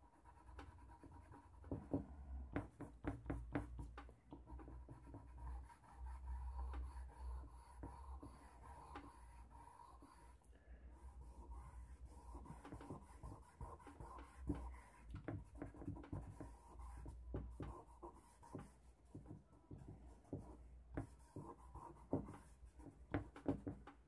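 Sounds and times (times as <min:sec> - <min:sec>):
charcoal scratching on paper: 0:04.4 - 0:10.4, 0:11.0 - 0:19.2, 0:20.2 - 0:22.9.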